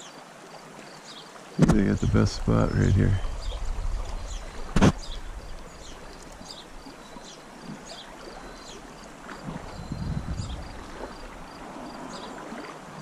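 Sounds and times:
sharp knock: 0:04.8 - 0:05.0.

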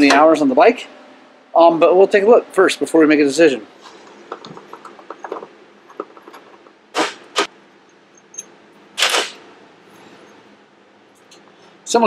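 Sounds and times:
sharp metal clinks: 0:07.9 - 0:08.6.

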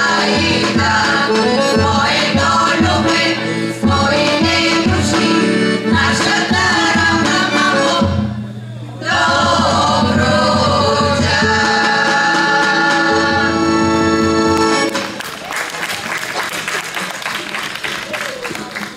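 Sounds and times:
women's choir singing: 0:00.0 - 0:08.2, 0:09.0 - 0:14.5
accordion: 0:00.0 - 0:15.2
applause: 0:14.9 - 0:18.9.

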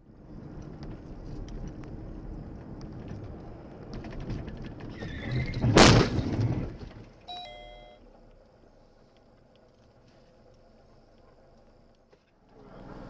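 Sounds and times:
car crash: 0:03.9 - 0:07.3
electronic chime: 0:07.3 - 0:08.0.

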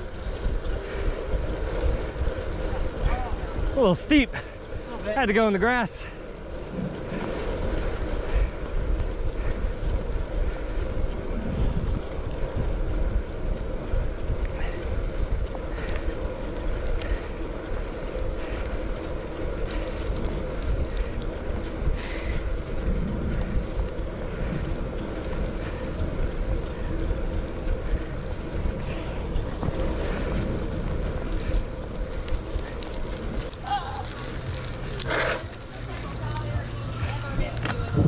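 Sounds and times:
wind rumbling on microphone: 0:00.0 - 0:38.0
tyres hissing on wet road: 0:33.9 - 0:36.6.

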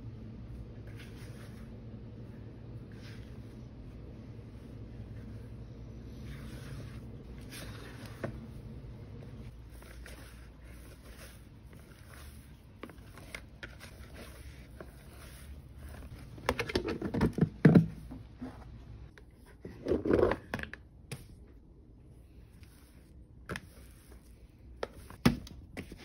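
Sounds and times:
hands working bread dough: 0:00.5 - 0:20.2.

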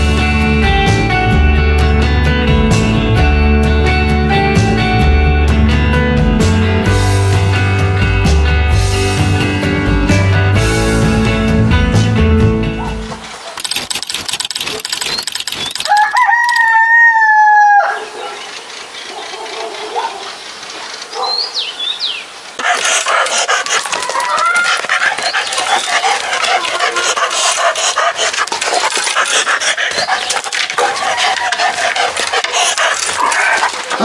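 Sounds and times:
bird chirps: 0:14.6 - 0:16.5, 0:18.4 - 0:22.3
rooster crowing: 0:15.8 - 0:18.2.

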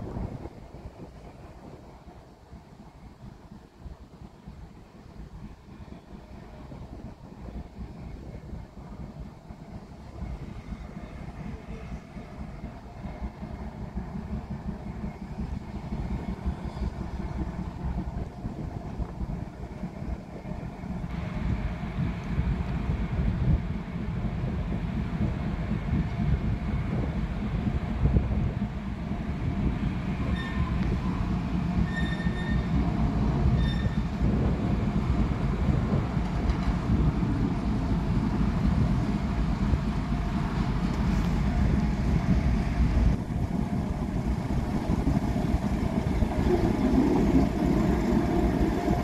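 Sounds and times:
locomotive engine running: 0:00.0 - 0:49.0
wind rumble on microphone: 0:00.0 - 0:49.0
train wheels squealing: 0:30.1 - 0:34.2.

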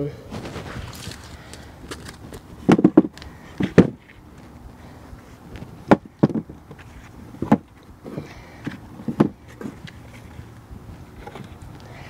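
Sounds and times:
footsteps on wooden boards: 0:00.3 - 0:04.6, 0:05.5 - 0:10.3.

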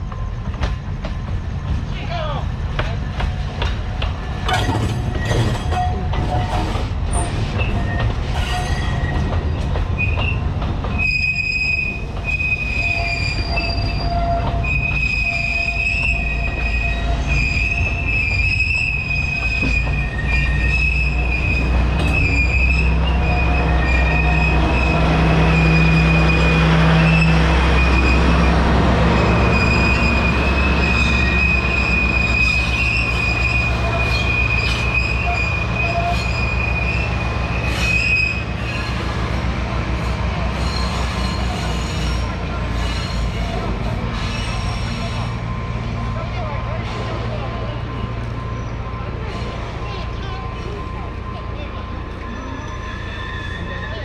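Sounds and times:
locomotive low rumble: 0:00.0 - 0:54.0
train wheels squealing: 0:04.4 - 0:28.6, 0:29.2 - 0:39.4, 0:40.0 - 0:45.6, 0:48.0 - 0:51.4, 0:52.0 - 0:54.0.

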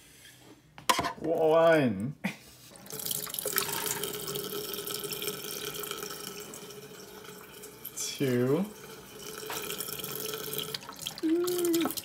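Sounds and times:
faucet water running into metal sink: 0:02.8 - 0:12.0.

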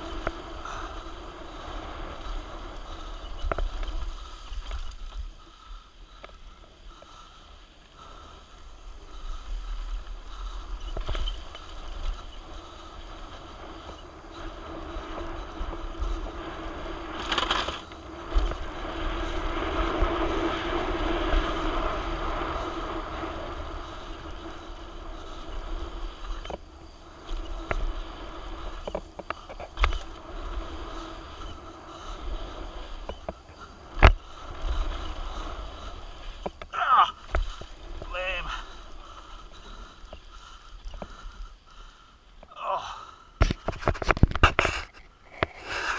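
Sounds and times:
wind buffeting microphone: 0:00.0 - 0:06.2
bike rattling: 0:00.0 - 0:45.9
tyres rolling over loose dirt: 0:00.0 - 0:45.9.

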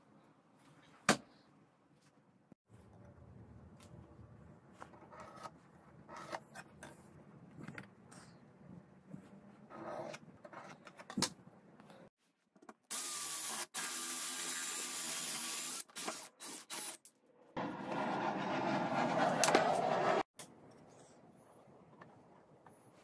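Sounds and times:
power drill cutting wood: 0:12.9 - 0:17.0.

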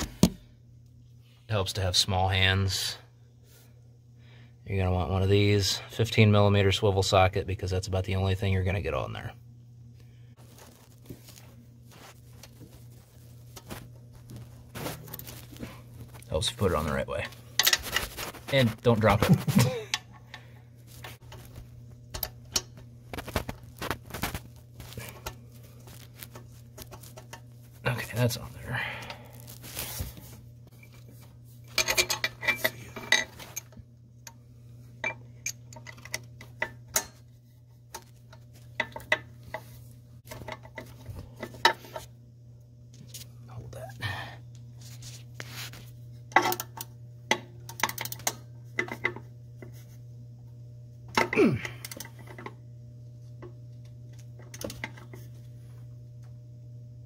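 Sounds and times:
steady low hum: 0:00.0 - 0:57.0
metal tools clinking: 0:31.7 - 0:33.8.

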